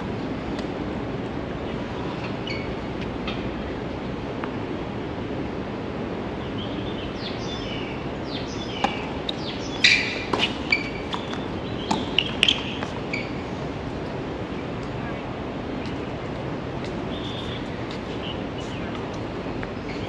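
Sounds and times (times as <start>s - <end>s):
shoe squeaks: 2.4s - 2.8s, 9.3s - 13.5s
tennis ball racquet hits: 8.8s - 13.1s.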